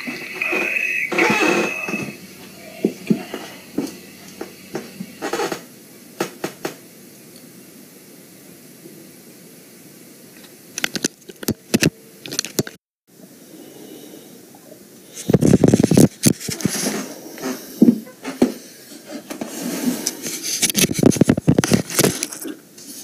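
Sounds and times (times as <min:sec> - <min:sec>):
steady hiss: 0:00.0 - 0:10.9, 0:13.1 - 0:23.0
scattered clicks and knocks: 0:06.2 - 0:06.8
irregular clattering and scraping: 0:15.2 - 0:22.6.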